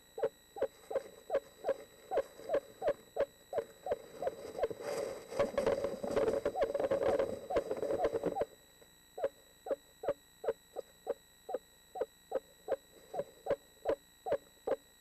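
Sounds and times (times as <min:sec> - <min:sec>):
owl hooting: 0:00.0 - 0:08.6, 0:09.2 - 0:14.9.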